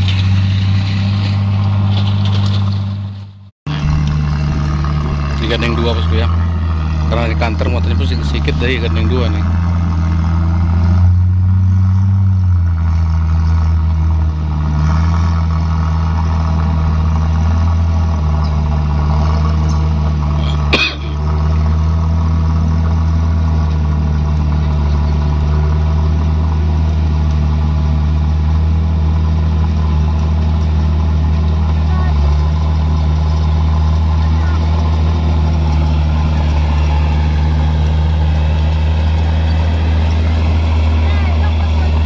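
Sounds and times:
truck engine droning: 0.0s - 42.0s.

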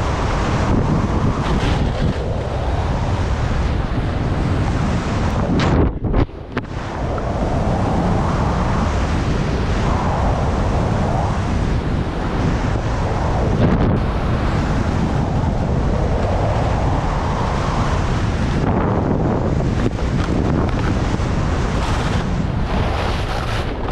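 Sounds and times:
wind buffeting microphone: 0.0s - 23.9s
skis carving over snow: 19.8s - 23.9s.

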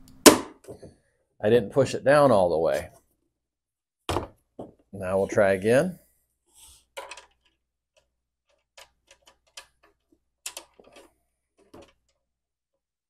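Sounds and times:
plastic parts clicking into place: 7.0s - 12.2s.

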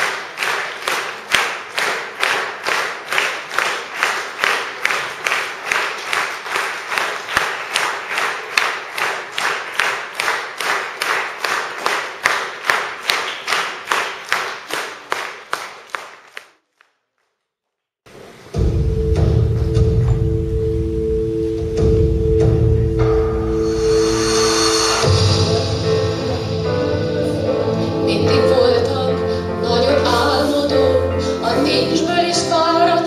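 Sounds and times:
audience clapping in unison: 0.0s - 17.0s.

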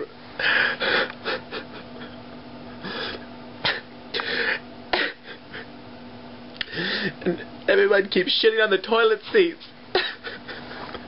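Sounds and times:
man sobbing and sniffing: 0.4s - 5.8s, 6.6s - 7.6s, 9.9s - 11.0s.

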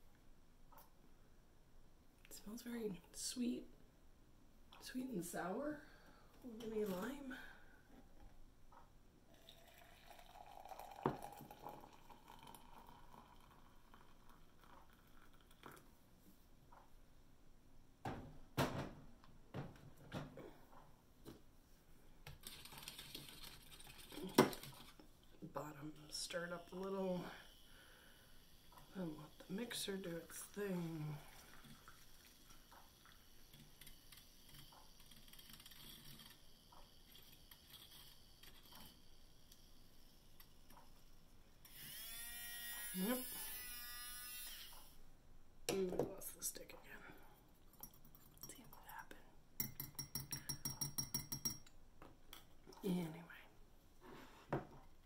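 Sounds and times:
water trickling into a mug: 9.3s - 15.9s, 28.4s - 40.5s, 47.7s - 49.0s
milk frother whirring: 31.3s - 45.0s.

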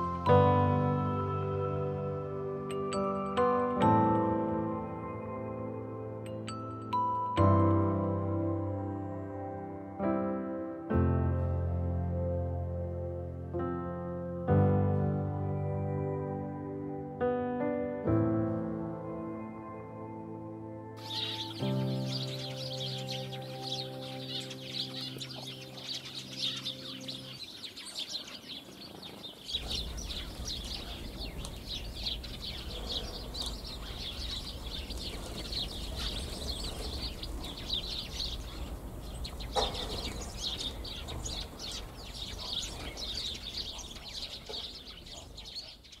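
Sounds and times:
background music: 0.0s - 27.5s, 29.6s - 45.7s
small birds chirping: 21.0s - 46.0s.

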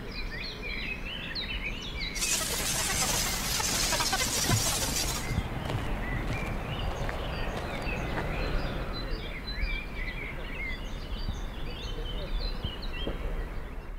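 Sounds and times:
songbirds chirping and whistling: 0.0s - 13.9s
steady rough rushing noise: 2.2s - 6.4s.

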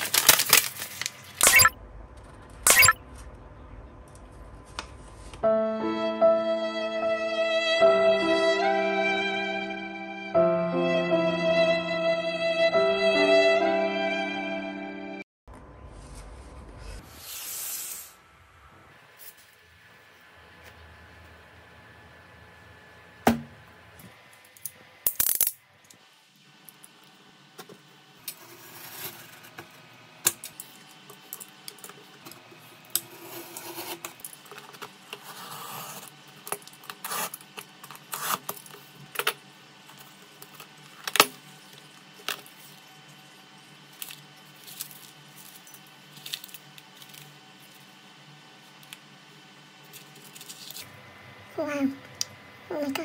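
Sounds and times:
packing tape being cut: 0.0s - 1.7s, 33.0s - 38.8s.

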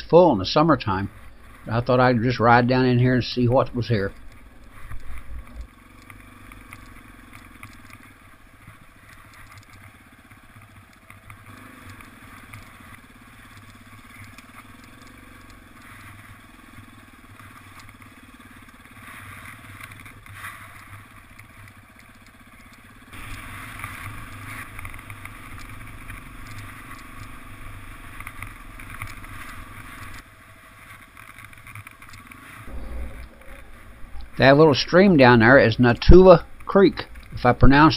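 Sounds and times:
motorcycle engine running: 0.0s - 37.9s.

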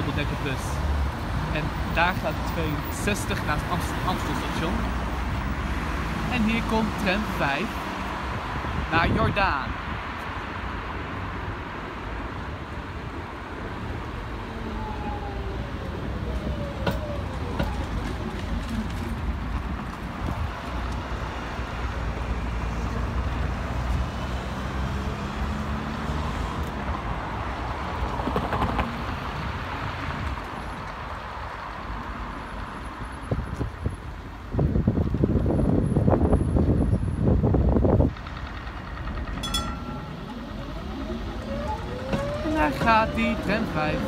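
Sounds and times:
city traffic rumble: 0.0s - 44.0s
tram approaching on track: 12.2s - 25.7s, 36.8s - 44.0s
bus engine pulling away: 12.2s - 31.0s, 31.6s - 44.0s.

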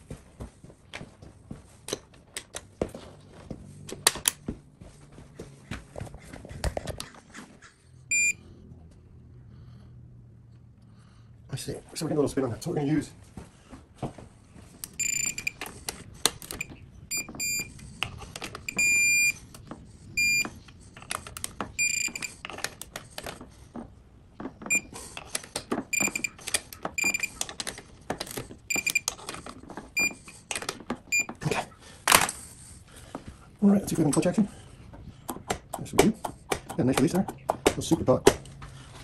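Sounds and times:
torque wrench beeping: 8.1s - 8.4s, 14.8s - 15.6s, 16.4s - 17.7s, 18.6s - 19.4s, 20.2s - 20.5s, 21.8s - 22.4s, 24.7s - 24.9s, 25.9s - 26.4s, 27.0s - 27.4s, 28.7s - 29.1s, 30.0s - 30.2s.

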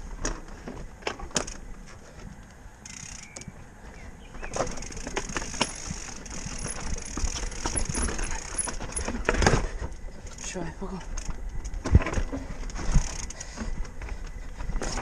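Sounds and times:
bike rattling: 0.0s - 15.0s
bike hub ratcheting: 2.8s - 3.5s, 4.5s - 9.5s, 10.2s - 13.6s
tyres crunching on stones: 4.2s - 10.4s.

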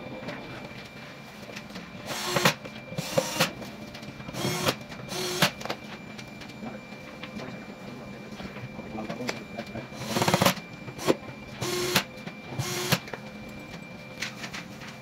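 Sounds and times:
cordless drill running: 2.0s - 3.5s, 4.4s - 5.6s, 10.0s - 12.0s, 12.6s - 13.0s.

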